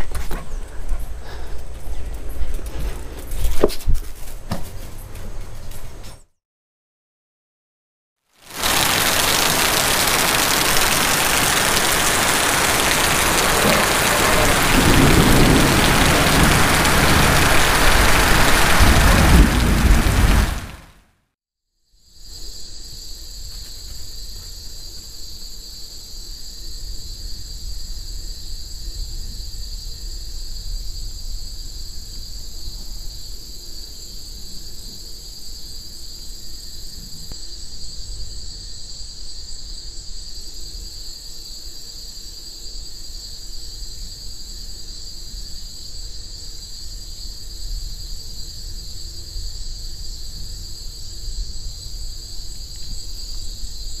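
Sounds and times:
insects trilling: 0:08.4 - 0:20.5, 0:21.9 - 0:54.0
low rumble: 0:11.2 - 0:20.9.

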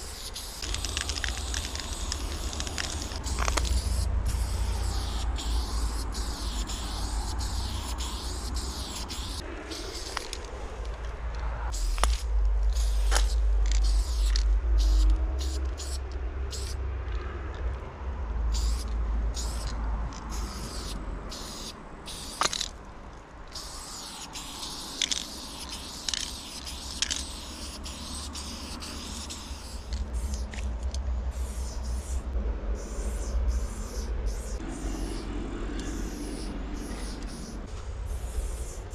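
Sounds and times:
spray paint can hissing: 0:00.0 - 0:10.5, 0:11.7 - 0:16.8, 0:18.5 - 0:22.8, 0:23.5 - 0:38.9
low rumble: 0:09.4 - 0:20.4, 0:29.8 - 0:38.9.

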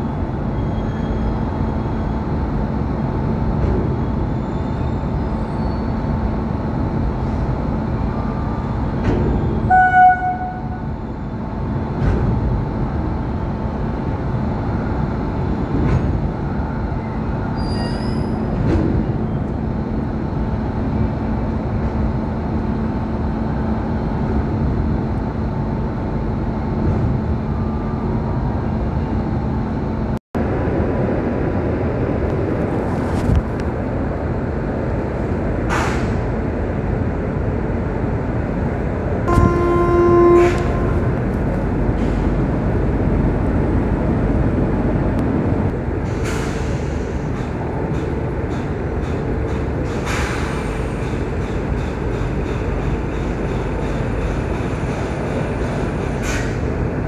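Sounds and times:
electric locomotive humming: 0:00.0 - 0:57.0
train coaches rumbling past: 0:00.0 - 0:57.0
train horn toot: 0:09.7 - 0:10.9, 0:39.2 - 0:41.2.

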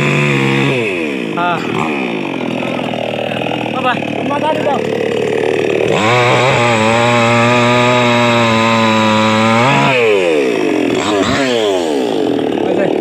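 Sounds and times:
chainsaw engine revving: 0:00.0 - 0:13.0.

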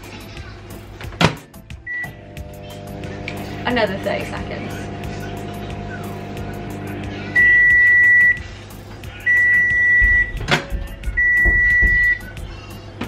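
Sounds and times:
microwave oven humming: 0:01.7 - 0:12.7
microwave long beeps: 0:01.8 - 0:08.5, 0:09.2 - 0:10.4, 0:11.2 - 0:12.3.

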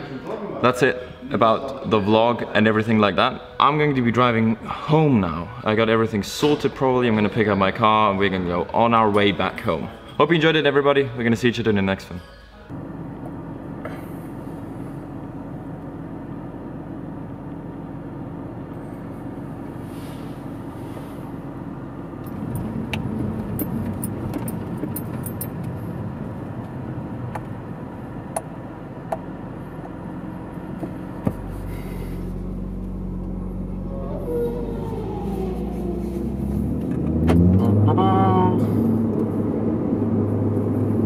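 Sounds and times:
car engine running: 0:12.7 - 0:41.0.

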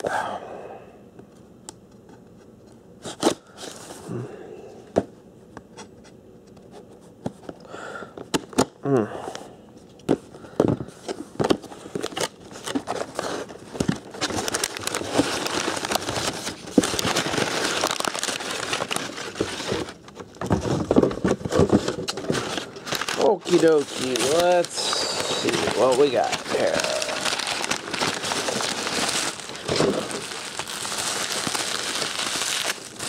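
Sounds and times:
packing paper crumpling and tearing: 0:11.5 - 0:33.0.

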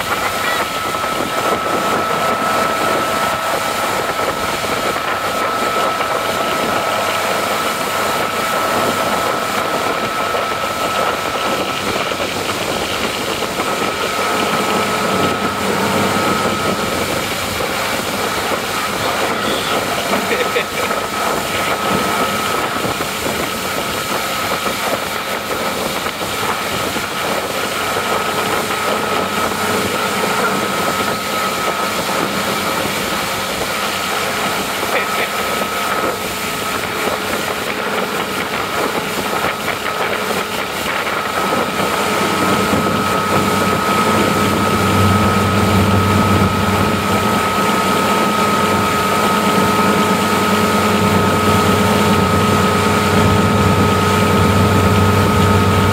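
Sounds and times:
motorboat engine running: 0:00.0 - 0:55.9
wake rushing: 0:00.0 - 0:55.9.

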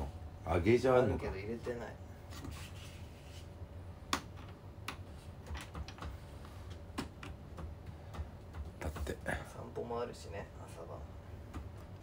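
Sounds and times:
low room hum: 0:00.0 - 0:12.0
light irregular clicks and taps: 0:04.1 - 0:09.3.

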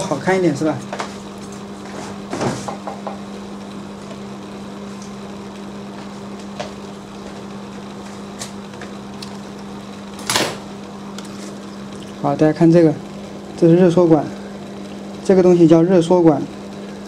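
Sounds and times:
electrical hum: 0:00.0 - 0:17.0
knock on workbench: 0:02.3 - 0:03.2.

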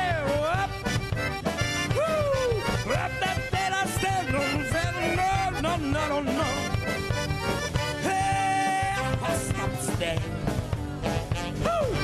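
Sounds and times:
accordion: 0:00.0 - 0:12.0
drums: 0:00.0 - 0:12.0
saxophone: 0:04.3 - 0:12.0.

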